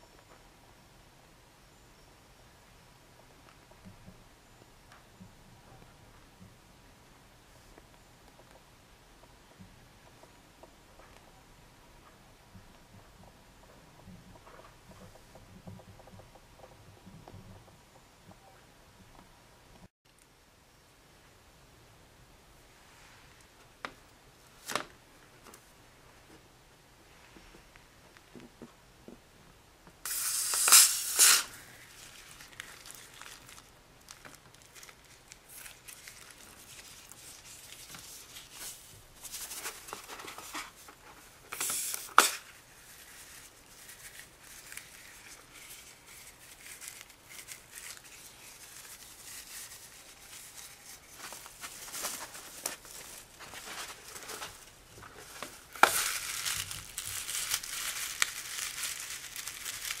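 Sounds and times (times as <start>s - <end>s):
rubber crinkling and tearing: 30.1s - 60.0s
soft handling noises: 31.7s - 60.0s.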